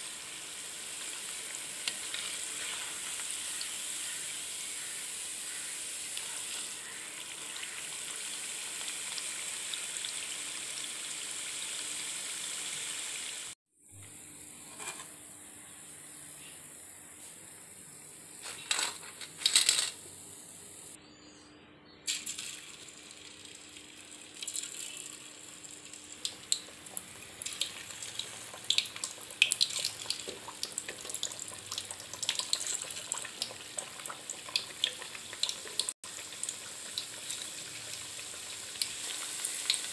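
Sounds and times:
snacks deep-frying in oil: 0.0 - 13.6, 22.1 - 39.9.

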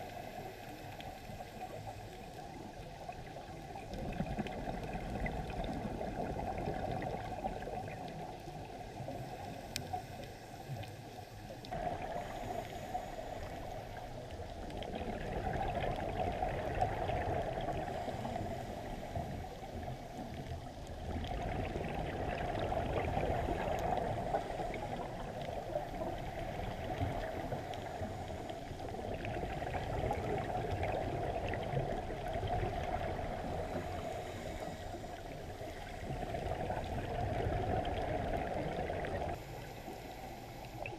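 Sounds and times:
muffled underwater rushing: 0.0 - 40.9.

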